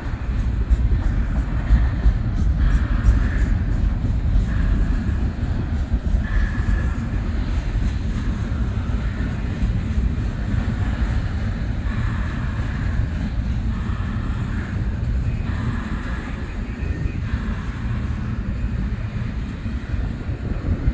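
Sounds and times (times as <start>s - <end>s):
train wheels rumbling on track: 0.0s - 20.9s.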